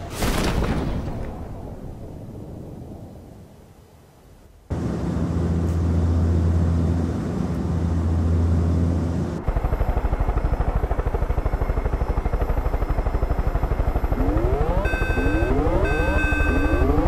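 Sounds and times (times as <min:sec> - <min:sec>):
helicopter engine drone: 0:04.7 - 0:17.0
helicopter rotor blades chopping: 0:04.7 - 0:17.0.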